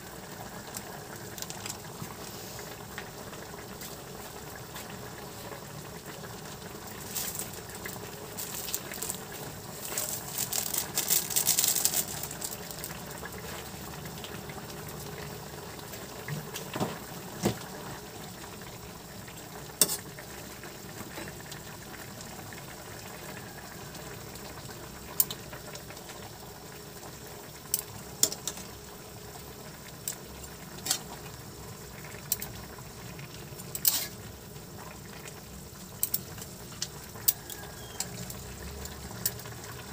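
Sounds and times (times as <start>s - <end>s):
sauce bubbling in a wok: 0.0s - 39.9s
metal utensils scraping a wok: 19.8s - 20.0s, 33.8s - 34.2s.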